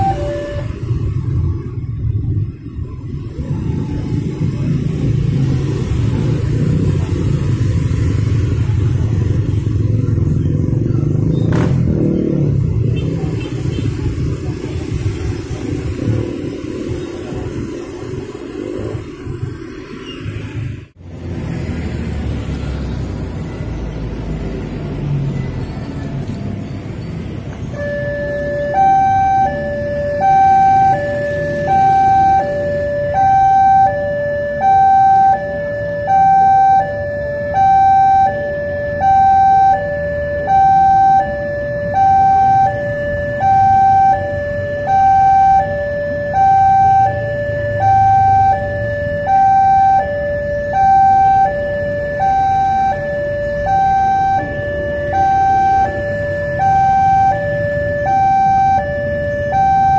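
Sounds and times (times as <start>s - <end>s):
level crossing two-tone alarm: 0.0s - 1.0s, 27.7s - 59.9s
road traffic rumbling: 0.0s - 59.9s.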